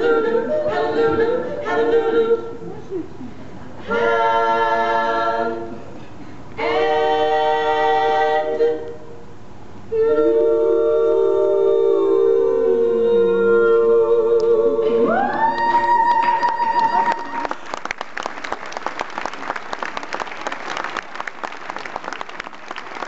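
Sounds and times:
women singing in close harmony: 0.0 - 2.7, 3.8 - 6.0, 6.6 - 9.2, 9.9 - 17.4.

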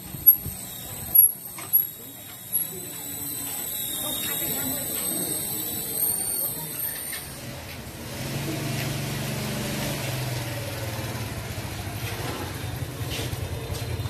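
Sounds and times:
high thin electric whine: 0.0 - 7.4.

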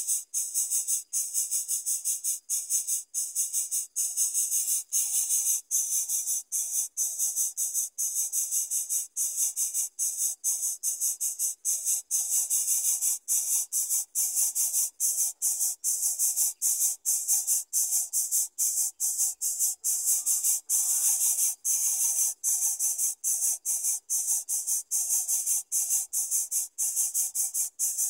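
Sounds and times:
nestlings begging calls: 17.8 - 28.0.

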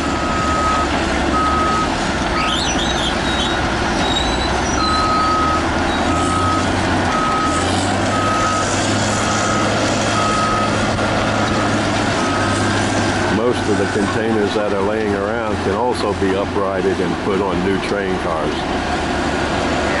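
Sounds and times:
diesel engines running: 0.0 - 20.0
backup alarm beeping: 0.2 - 1.9.

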